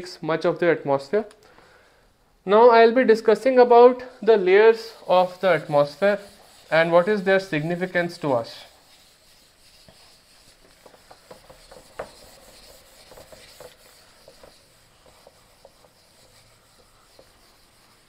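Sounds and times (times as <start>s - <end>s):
eraser wiping a whiteboard: 4.0s - 18.0s.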